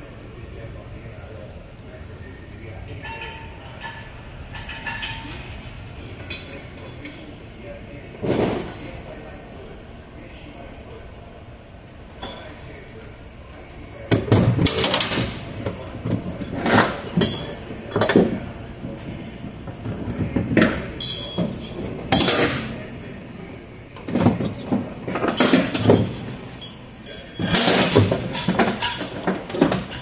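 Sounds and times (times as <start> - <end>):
metal buckles clinking: 21.0 - 22.5, 25.2 - 29.2.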